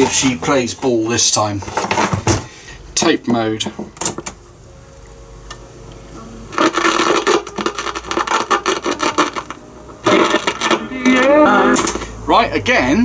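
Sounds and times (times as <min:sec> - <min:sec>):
faint hum: 0:04.3 - 0:12.6
scratchy speaker crackle: 0:06.4 - 0:12.2.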